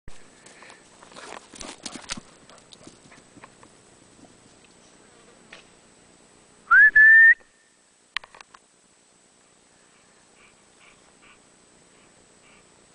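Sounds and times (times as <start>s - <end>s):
whistle blown hard: 6.7s - 7.7s.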